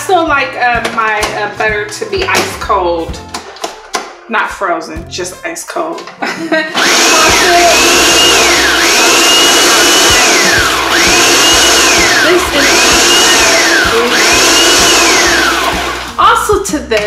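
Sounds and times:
food processor grinding: 0:06.7 - 0:16.2.

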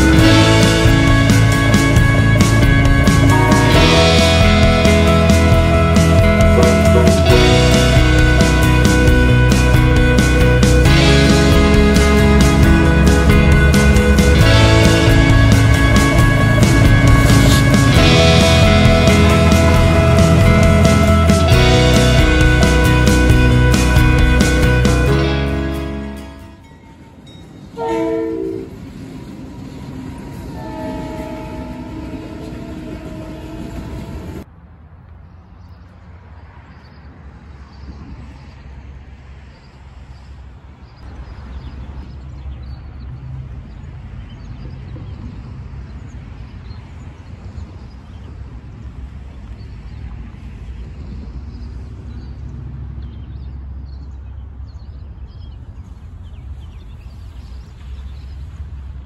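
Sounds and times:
diesel engines rumbling: 0:00.0 - 0:26.6
locomotive horn chord: 0:00.0 - 0:26.6, 0:27.8 - 0:28.8, 0:30.3 - 0:34.4.

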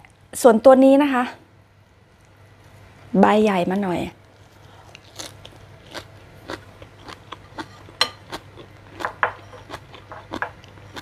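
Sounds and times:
crunchy chewing: 0:04.2 - 0:11.0.

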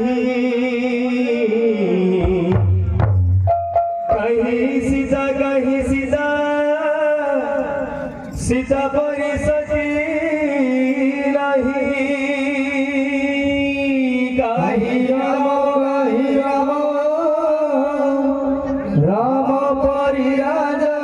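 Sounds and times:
drum: 0:02.1 - 0:06.2.

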